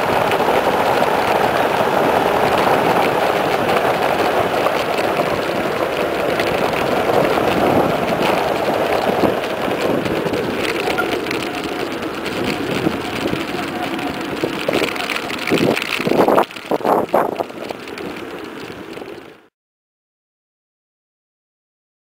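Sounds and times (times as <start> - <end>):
wind over microphone: 0.0 - 19.3
tyres humming on tarmac: 0.0 - 19.5.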